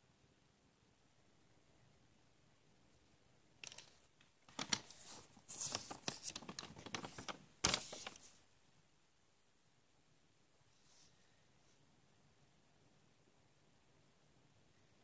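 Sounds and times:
notebook pages turning: 3.6 - 8.4
page snapping: 4.5 - 8.2.

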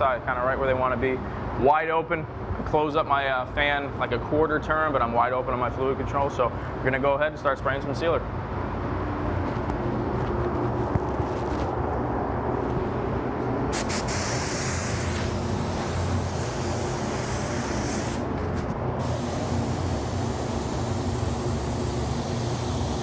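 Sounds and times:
spray gun air hiss: 13.7 - 18.3, 19.0 - 23.0.

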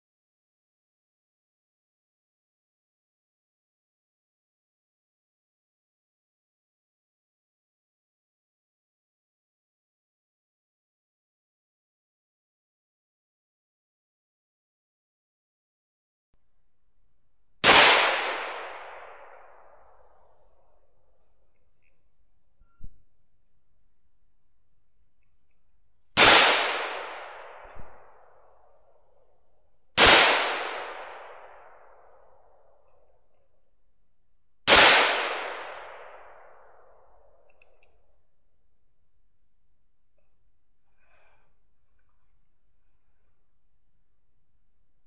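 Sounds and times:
rifle shots with rolling echo: 17.6 - 20.5, 26.2 - 28.8, 30.0 - 32.9, 34.7 - 37.5.

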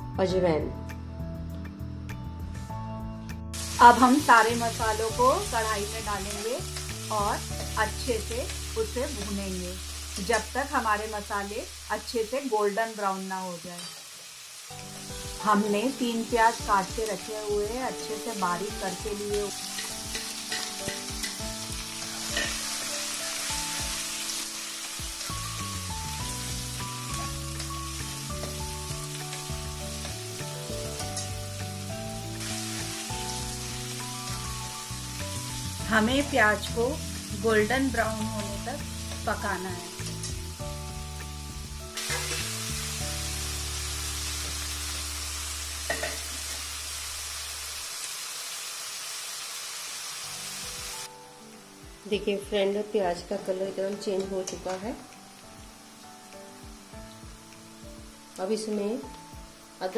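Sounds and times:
background music of held notes: 0.0 - 10.4, 14.7 - 46.0, 50.4 - 59.9
onions sizzling in oil: 3.5 - 59.9
ladle scraping pan: 42.0 - 42.5.

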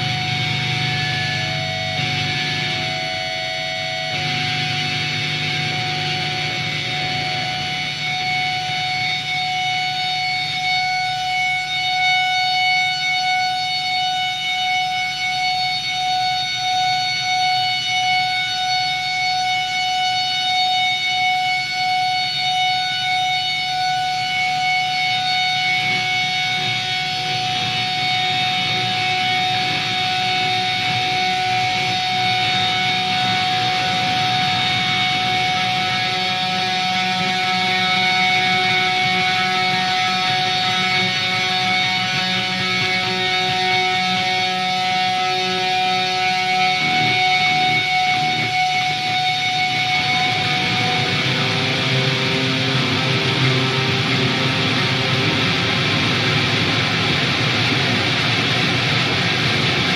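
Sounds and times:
distorted noisy drone: 0.0 - 10.6, 25.8 - 59.9
long held tone: 0.0 - 59.9.

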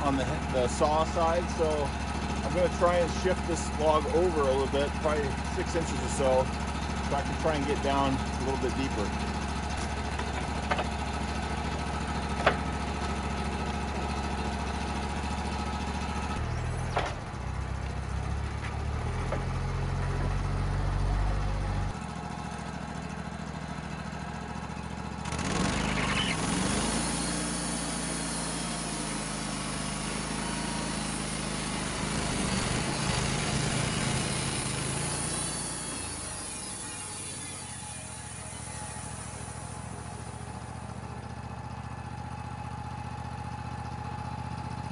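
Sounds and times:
band saw blade cutting log: 0.0 - 17.2, 25.2 - 41.0
sawmill engine running: 0.0 - 44.9.

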